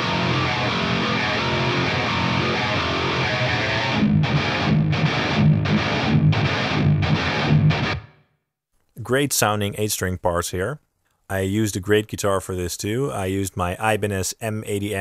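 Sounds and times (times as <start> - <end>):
distorted electric guitar chugs: 0.0 - 8.2.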